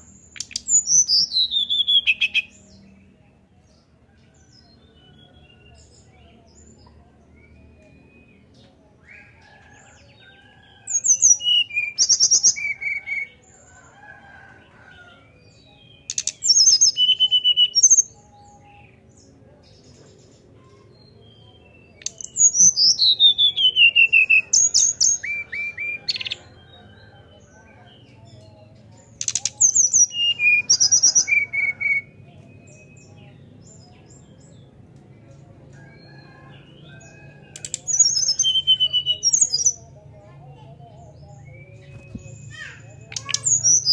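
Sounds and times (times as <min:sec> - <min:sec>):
bird whistling song: 0:00.3 - 0:02.5, 0:16.0 - 0:18.0, 0:37.6 - 0:39.7.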